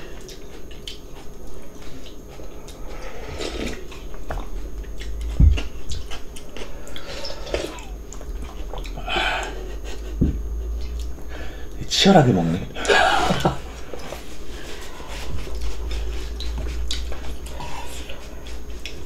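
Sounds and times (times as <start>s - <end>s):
chewing: 0.1s - 11.8s, 12.8s - 19.0s
dull low thump: 5.3s - 5.7s, 10.2s - 10.5s.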